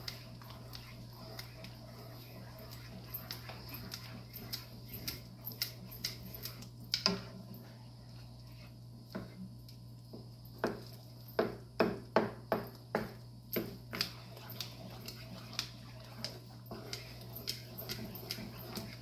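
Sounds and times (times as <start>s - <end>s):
wooden spoon stirring thick sauce: 0.0s - 9.5s, 13.6s - 19.0s
steady low hum: 0.0s - 19.0s.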